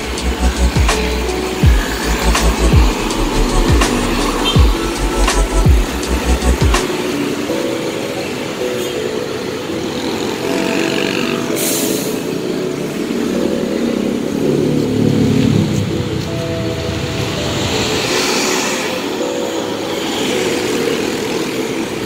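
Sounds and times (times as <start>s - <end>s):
engine revving: 0.0s - 7.1s
road traffic engines and tyres: 0.0s - 22.0s.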